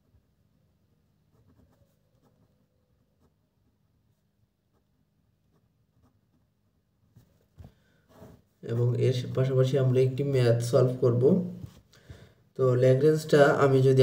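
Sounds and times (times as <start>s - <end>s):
pen scratching on paper: 1.2s - 7.5s.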